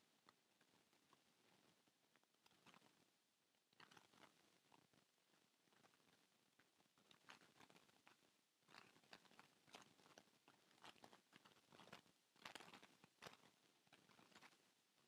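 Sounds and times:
faint clicks and crackles: 0.0 - 15.0.

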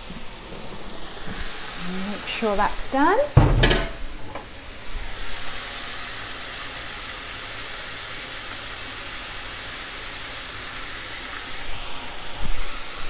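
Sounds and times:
gas cooktop hissing: 0.0 - 13.0
low thump: 3.4 - 4.1.

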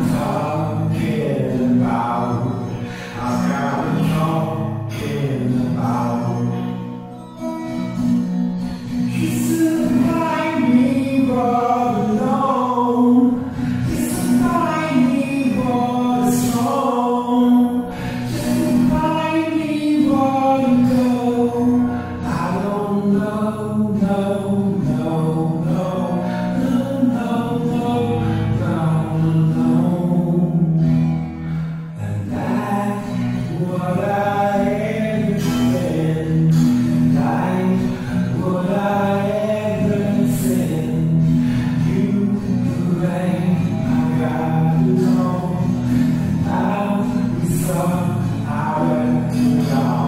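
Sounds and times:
person singing long notes: 9.0 - 30.8.

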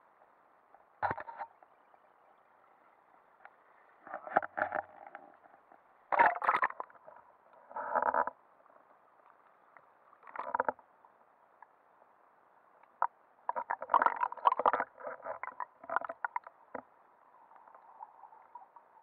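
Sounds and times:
water sloshing and gurgling: 6.1 - 8.4, 10.2 - 10.8, 13.0 - 19.0.

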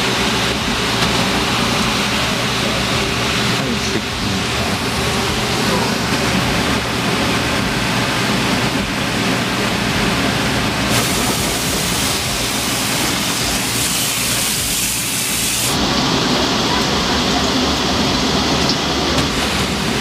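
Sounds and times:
hissing water spray: 10.8 - 18.7
water running from hose: 10.9 - 18.8.

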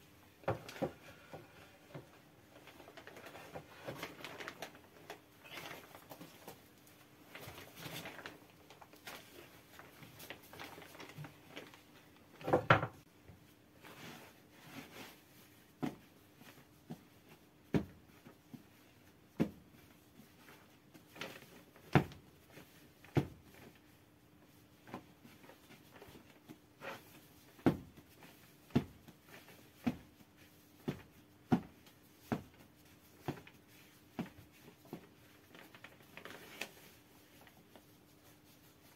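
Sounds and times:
dough balls patted and thumped: 14.9 - 38.9.

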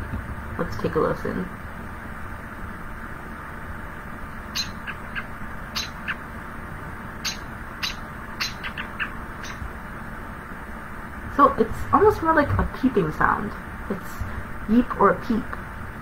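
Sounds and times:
robin alarm call peeps: 4.5 - 6.2, 7.2 - 9.6.

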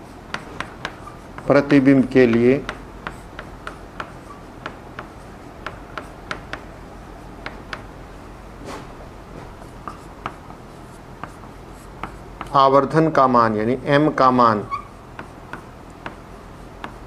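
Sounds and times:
chalk tapping and scraping on blackboard: 0.0 - 6.8, 7.4 - 7.9, 9.4 - 13.0, 14.6 - 17.0.

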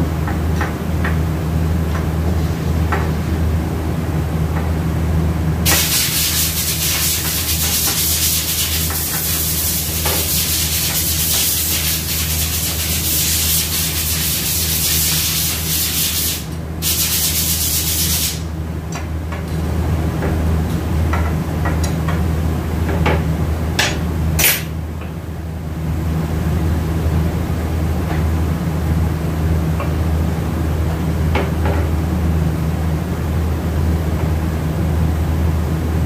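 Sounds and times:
low shop hum: 0.0 - 36.0.

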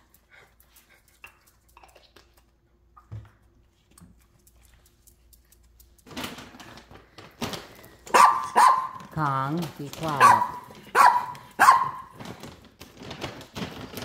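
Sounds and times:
small dogs barking: 8.1 - 9.1, 10.0 - 12.2.

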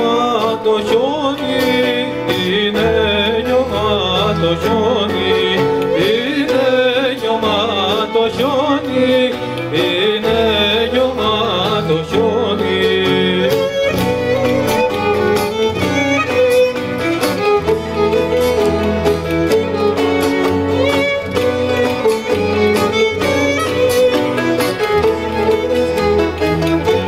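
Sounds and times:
man singing: 0.0 - 15.0
cello: 0.0 - 27.0
violin melody: 0.0 - 27.0.

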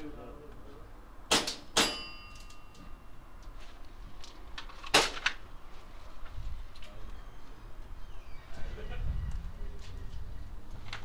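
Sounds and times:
airsoft gun shots: 1.3 - 2.0
metallic ring: 1.8 - 3.4.

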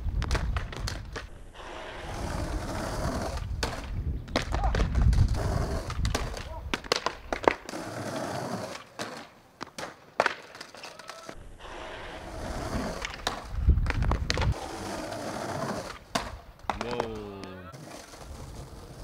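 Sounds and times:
skateboard wheels rolling on stone: 0.0 - 19.0
skateboard clacking on stone: 0.2 - 1.3, 3.6 - 11.4, 13.0 - 14.6, 15.8 - 19.0.

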